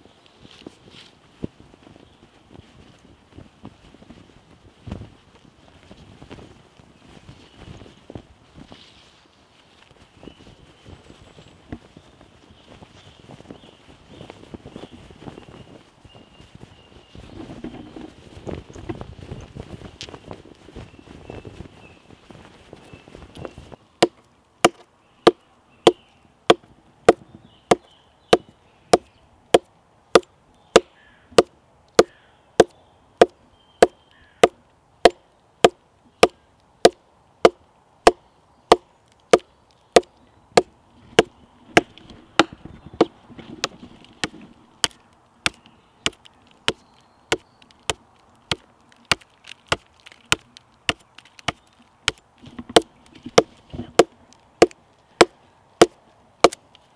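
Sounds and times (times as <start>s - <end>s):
wood knocking on wood: 17.4s - 18.2s, 40.0s - 56.6s.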